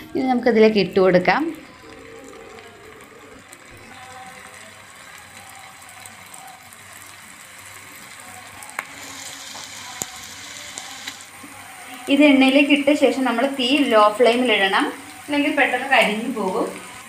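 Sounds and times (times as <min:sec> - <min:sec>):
onion rings deep-frying in oil: 0:00.0 - 0:17.0.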